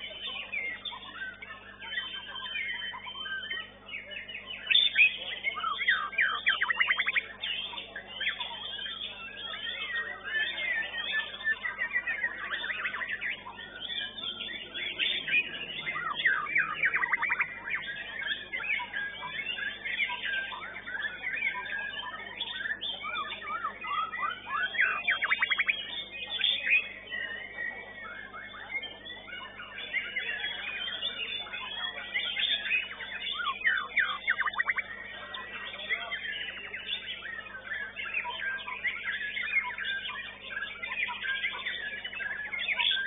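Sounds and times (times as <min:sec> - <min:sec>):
songbird whistling and trilling: 0:00.0 - 0:43.0.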